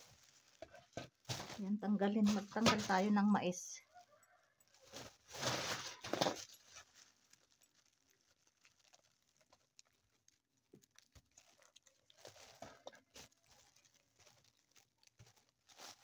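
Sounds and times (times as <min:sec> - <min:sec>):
popcorn kernels pattering into pan: 0:00.0 - 0:03.2, 0:04.0 - 0:16.0.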